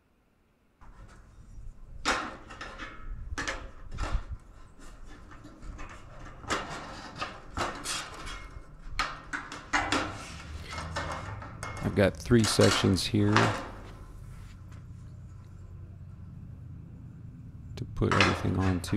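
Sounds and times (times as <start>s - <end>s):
metal clicks and knocks: 2.0s - 14.1s, 17.8s - 18.9s.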